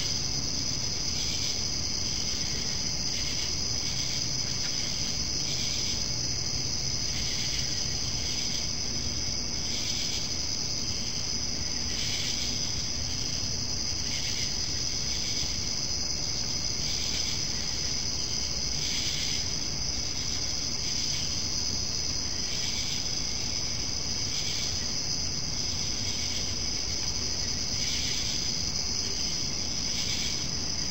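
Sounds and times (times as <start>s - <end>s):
crickets trilling: 0.0s - 30.9s
lower cricket chirp: 0.0s - 30.9s.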